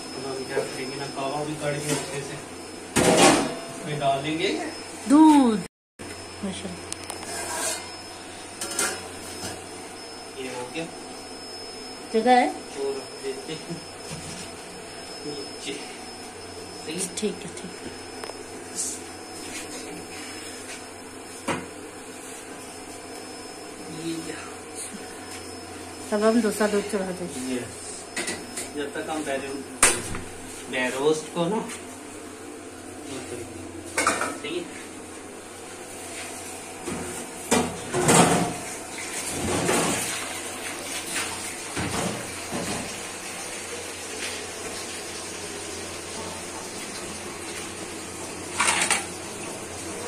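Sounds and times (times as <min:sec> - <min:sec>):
steady appliance hum: 0:00.0 - 0:50.0
kitchen clatter: 0:48.5 - 0:49.1.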